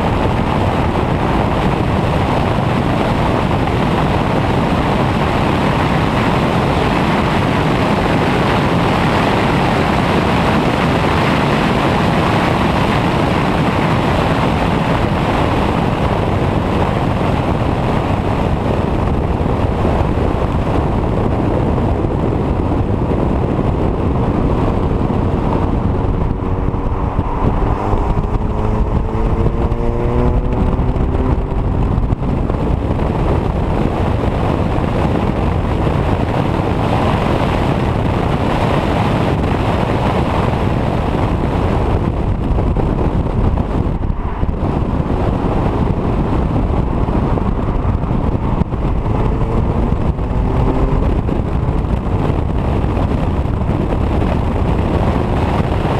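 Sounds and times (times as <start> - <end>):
tyre and road noise: 0.0 - 55.9
wind rushing over microphone: 0.0 - 55.9
faint car engine accelerating: 22.7 - 33.9, 42.0 - 53.1.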